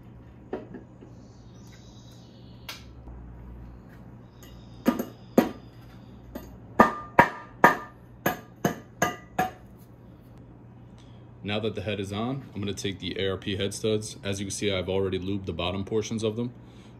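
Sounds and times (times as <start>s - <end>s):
mallet knocking on metal: 6.8s - 9.6s.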